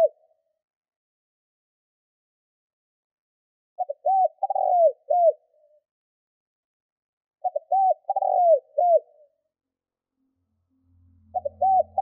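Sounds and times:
dove cooing: 3.8s - 5.7s, 7.4s - 9.3s, 11.3s - 12.0s.

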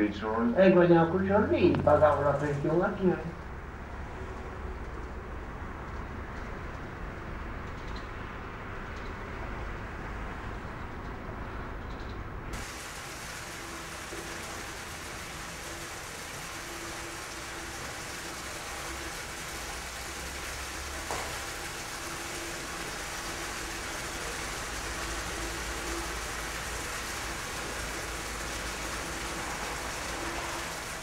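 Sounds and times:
water running into stone basin: 12.6s - 31.0s.

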